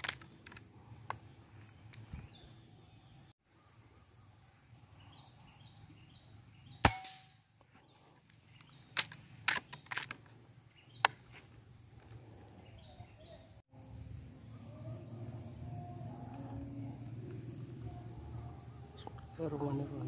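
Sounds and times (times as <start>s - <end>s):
air rifle shot: 6.8s - 7.4s
sharp clicks: 8.6s - 10.3s.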